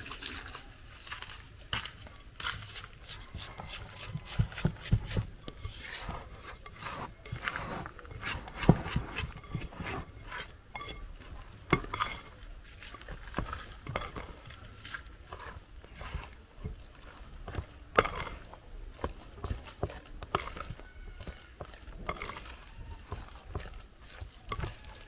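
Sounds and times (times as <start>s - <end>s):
stirring and squishing food: 0.0s - 25.0s.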